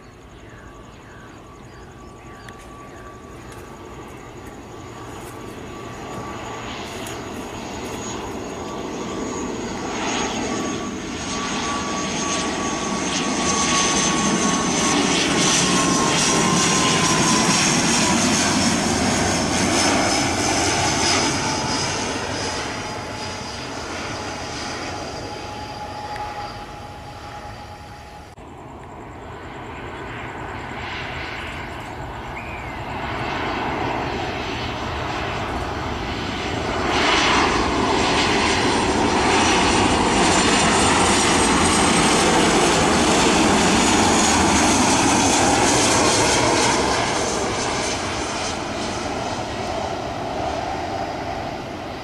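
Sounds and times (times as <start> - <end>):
jet engines on approach: 0.0 - 52.0
turboprop plane passing: 0.0 - 52.0.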